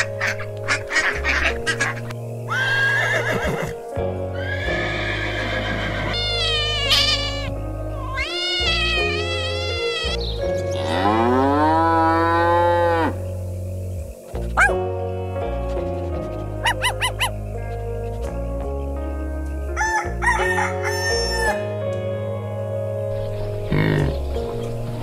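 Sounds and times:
background music: 0.0s - 25.0s
horse whinnying: 2.5s - 3.8s, 4.4s - 10.2s
cat meowing: 6.0s - 10.2s.

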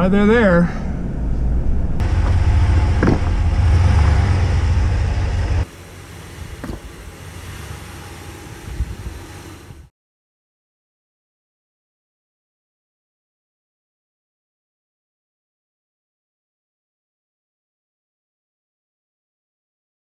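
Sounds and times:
pickup engine rumbling: 0.7s - 9.9s.

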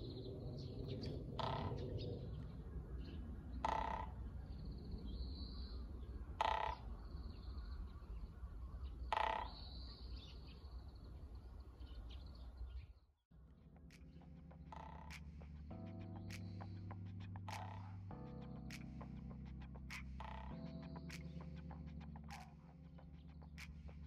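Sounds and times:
small birds twittering: 0.0s - 13.0s
crow cawing: 3.6s - 4.2s, 6.4s - 6.9s, 9.1s - 9.6s.

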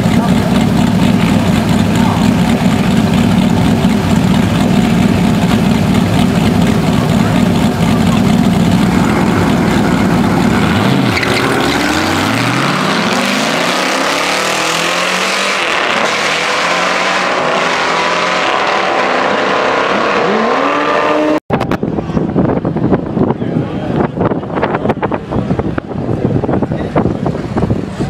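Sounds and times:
racing car engines revving: 0.0s - 21.7s.

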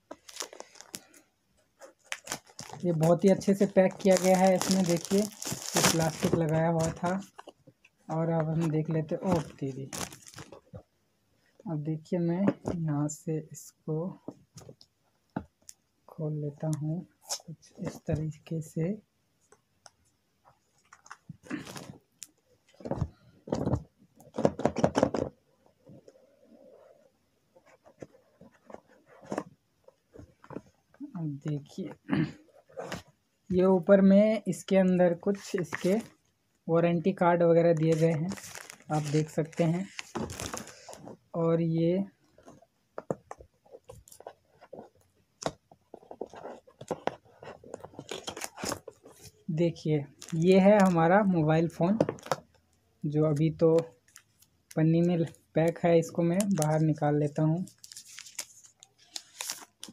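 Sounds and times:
cardboard scraping and rustling: 3.4s - 7.6s, 37.9s - 41.2s.

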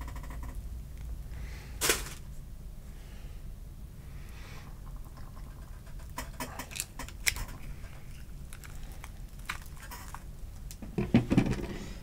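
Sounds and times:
small clicks and crackles: 4.8s - 10.8s.

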